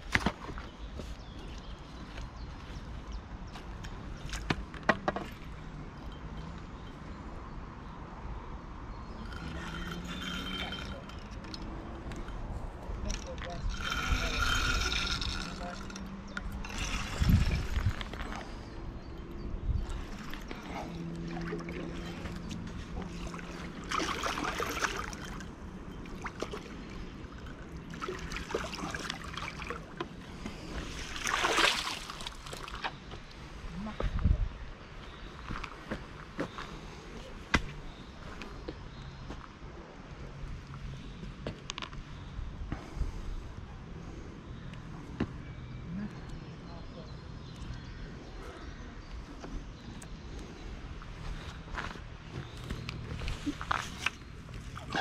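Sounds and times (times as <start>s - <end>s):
wind rumble on microphone: 0.0s - 23.8s, 33.0s - 35.6s
fish splashing at water surface: 30.9s - 32.9s.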